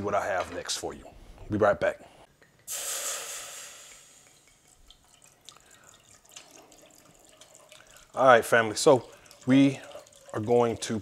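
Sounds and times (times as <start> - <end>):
faucet water splashing into skillet: 2.7 - 11.0
wine pouring into saucepan: 2.7 - 11.0.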